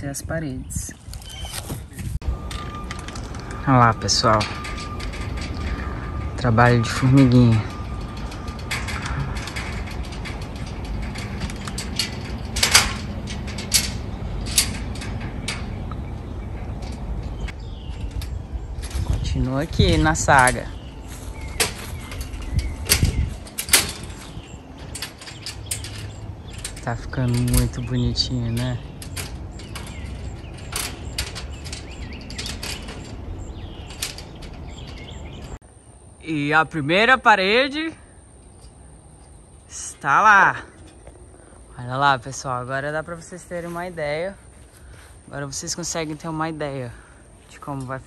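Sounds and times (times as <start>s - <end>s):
metallic clicks and scrapes: 1.2s - 35.6s
metallic rattling: 1.2s - 35.6s
steady low hum: 1.8s - 48.0s.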